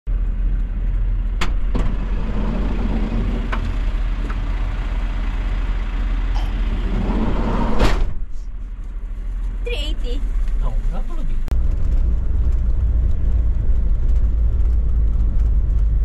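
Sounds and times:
van engine idling: 0:00.1 - 0:16.0
sliding door slamming shut: 0:01.4 - 0:04.4, 0:06.7 - 0:08.3.

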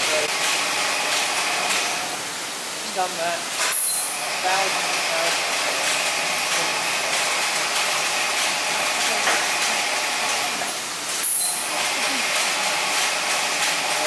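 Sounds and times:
machine mechanical clatter: 0:05.3 - 0:10.6, 0:11.2 - 0:14.0.

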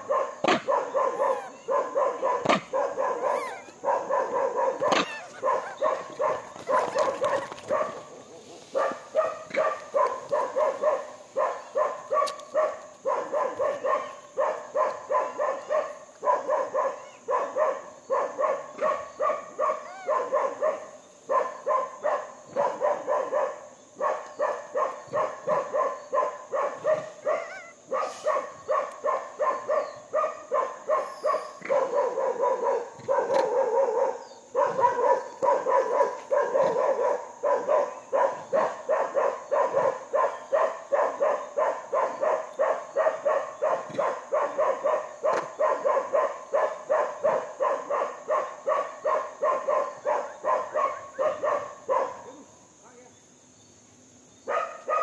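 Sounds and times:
animal short pitched calls: 0:03.3 - 0:03.8, 0:04.9 - 0:06.0, 0:27.3 - 0:28.2.

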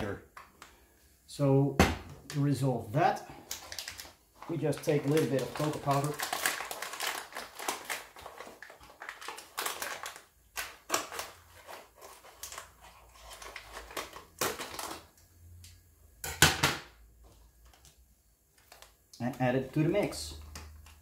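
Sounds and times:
paper and cardboard crinkling: 0:03.5 - 0:15.1.

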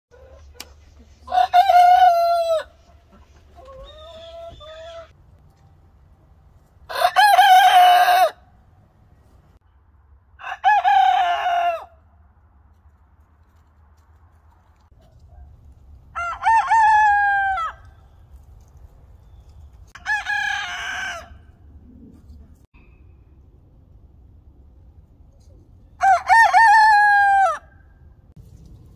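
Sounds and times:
roosters crowing: 0:01.2 - 0:02.9, 0:03.6 - 0:05.2, 0:06.9 - 0:08.4, 0:10.4 - 0:12.0, 0:16.1 - 0:18.0, 0:19.9 - 0:21.6, 0:26.0 - 0:27.8.

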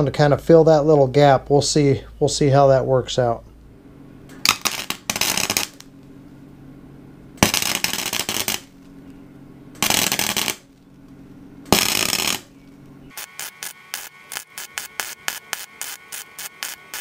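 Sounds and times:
welder humming: 0:04.0 - 0:17.0
crackling welding arc: 0:04.4 - 0:06.0, 0:07.4 - 0:08.9, 0:09.8 - 0:10.7, 0:11.7 - 0:12.5, 0:13.1 - 0:17.0.

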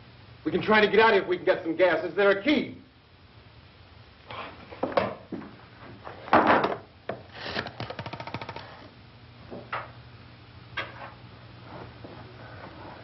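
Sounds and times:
rapid run of clicks: 0:07.5 - 0:08.9.

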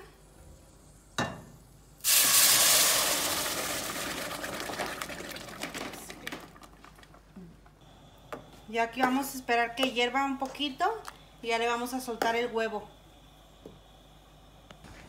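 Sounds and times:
salsa sizzling in hot pot: 0:00.8 - 0:07.2.

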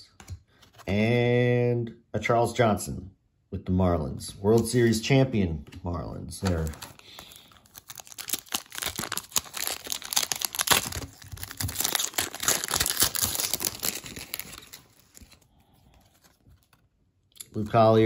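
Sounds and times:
wrapper crinkling and tearing: 0:06.4 - 0:16.8.

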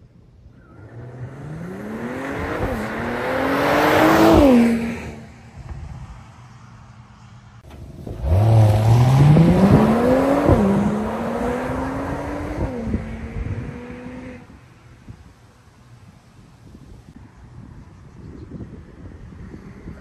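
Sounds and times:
car engine accelerating hard: 0:00.6 - 0:05.3, 0:07.7 - 0:14.6.

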